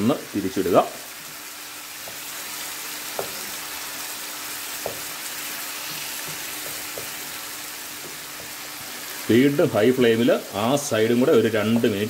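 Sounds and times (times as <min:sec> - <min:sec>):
chicken sizzling in hot oil: 0:00.0 - 0:12.0
spatula knocking against pan: 0:04.8 - 0:05.1, 0:06.2 - 0:07.2.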